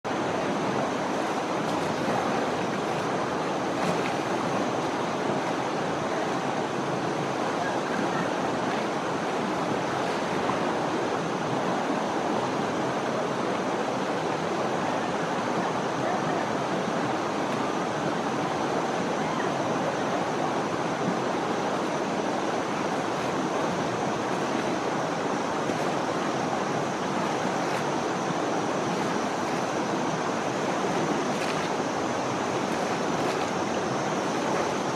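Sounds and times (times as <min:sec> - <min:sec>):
river water flowing: 0:00.0 - 0:34.9
elephants splashing in water: 0:01.1 - 0:05.6, 0:22.6 - 0:34.9.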